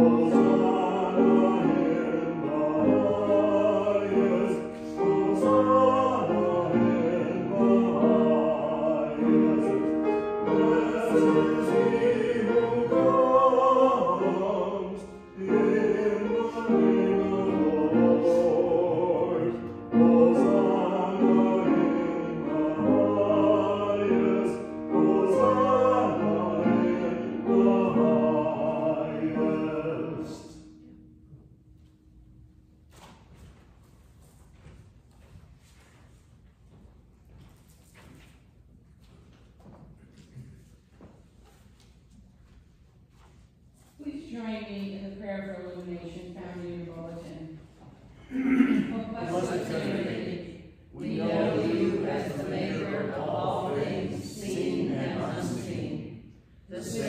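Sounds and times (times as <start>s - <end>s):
choir singing a hymn: 0.0s - 31.1s, 48.4s - 57.0s.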